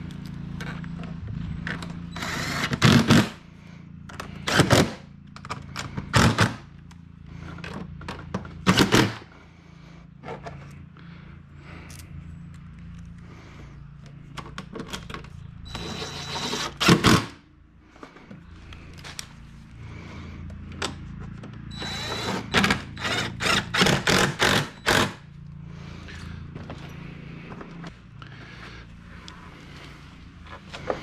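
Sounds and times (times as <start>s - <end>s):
cordless driver whining: 0.0s - 9.4s, 10.1s - 31.0s
steady low hum: 0.0s - 31.0s
driver trigger pulses: 20.6s - 25.2s.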